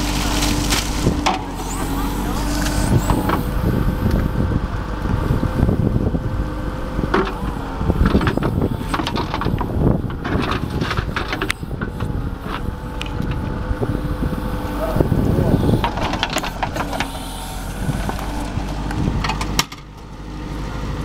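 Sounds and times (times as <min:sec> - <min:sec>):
diesel engine running: 0:00.0 - 0:21.0
wind on microphone: 0:00.9 - 0:19.4.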